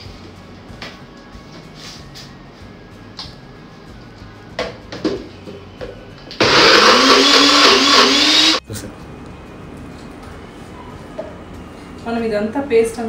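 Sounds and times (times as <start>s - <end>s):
blender motor running: 6.4s - 8.6s.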